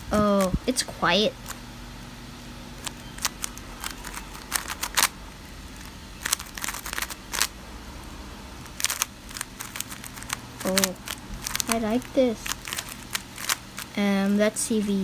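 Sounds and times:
puzzle cube plastic clicks: 2.8s - 5.1s, 5.8s - 7.5s, 8.7s - 14.4s.

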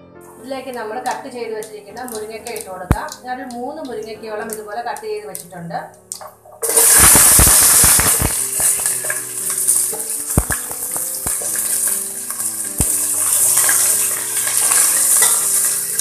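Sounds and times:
vegetables sizzling in hot oil: 6.1s - 16.0s
knocks in a pan: 6.2s - 12.0s.

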